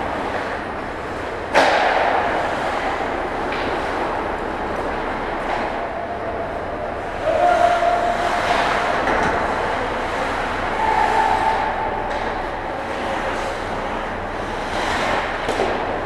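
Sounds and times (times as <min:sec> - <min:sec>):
skate blades scraping ice: 0:07.2 - 0:15.9.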